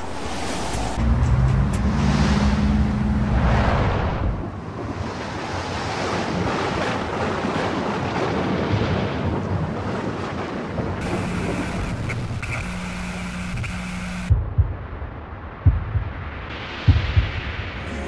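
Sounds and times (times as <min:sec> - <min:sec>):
rushing wind: 0:00.0 - 0:18.0
high steady tone: 0:11.0 - 0:14.3
low steady hum: 0:11.0 - 0:14.6.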